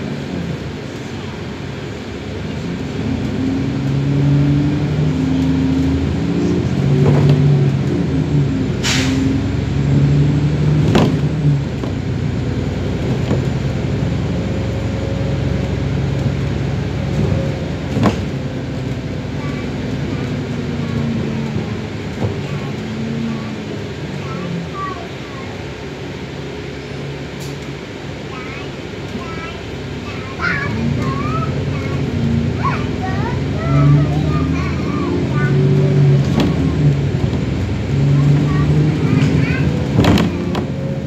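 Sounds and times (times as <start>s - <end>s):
bus engine: 0.0s - 41.0s
road noise: 0.0s - 41.0s
knocks and rattles: 39.2s - 40.7s.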